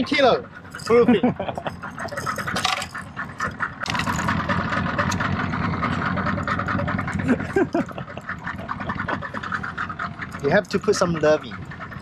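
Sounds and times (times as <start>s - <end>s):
boat engine running: 0.0s - 12.0s.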